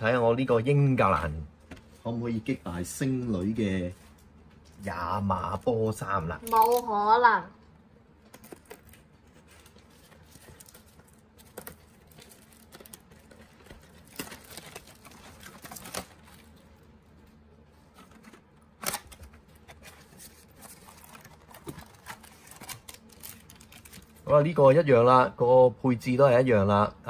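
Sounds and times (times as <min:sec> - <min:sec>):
card box wrapping rustling: 0:08.3 - 0:16.6, 0:17.8 - 0:24.2
wrapping crackle: 0:08.3 - 0:17.3, 0:17.9 - 0:24.3.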